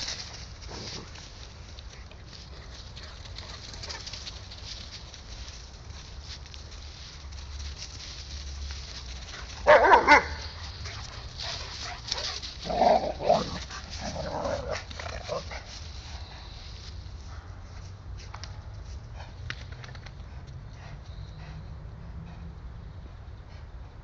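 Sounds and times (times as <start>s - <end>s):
dogs barking: 9.5s - 11.0s.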